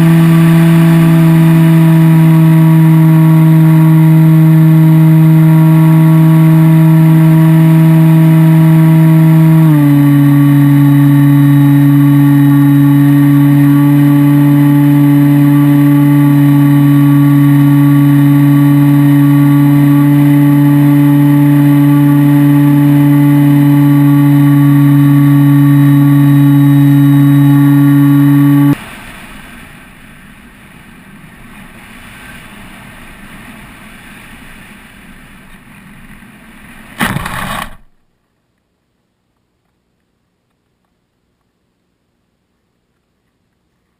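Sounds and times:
electric motor and propeller whine: 0.0s - 28.8s
faint rush of air: 24.7s - 38.0s.

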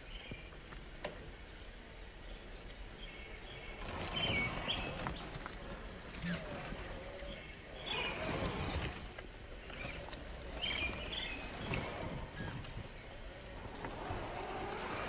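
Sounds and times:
toy car tyres crunching on rocks: 3.7s - 15.0s
bird chirps: 9.6s - 14.8s.

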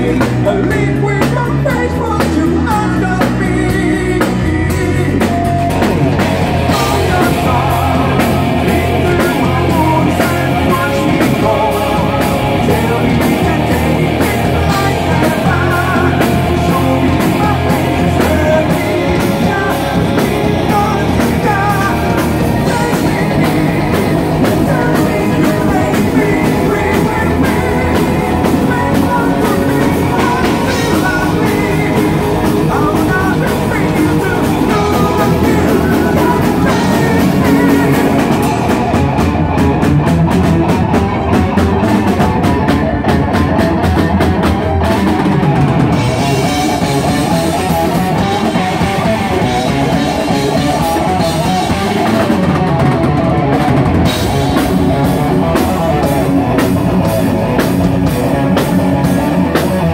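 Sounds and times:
person singing: 0.0s - 39.3s
distorted electric guitars and bass: 0.0s - 59.9s
fast drum beat: 0.0s - 59.9s.

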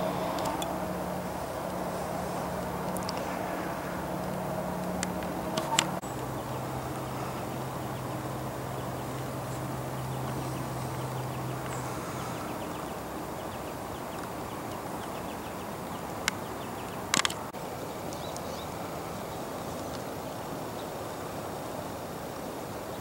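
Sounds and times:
low hum: 0.0s - 19.7s
sharp clicks: 16.1s - 17.5s.

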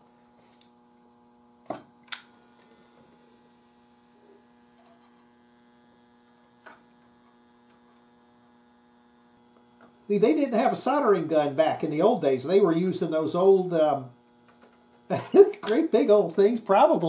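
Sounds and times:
soldering gun hum: 0.0s - 17.0s.

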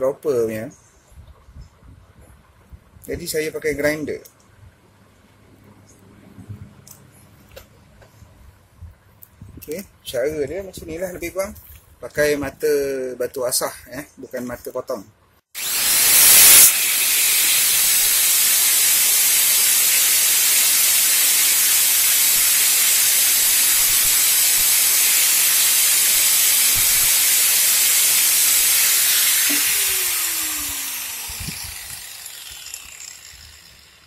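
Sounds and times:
angle grinder grinding metal: 15.6s - 34.0s
grinder winding down: 15.6s - 34.0s.

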